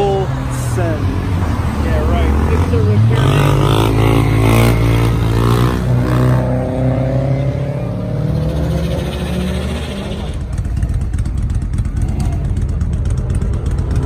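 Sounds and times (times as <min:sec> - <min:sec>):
car engine accelerating: 0:00.9 - 0:14.0
dirt bike engine revving: 0:02.0 - 0:10.8.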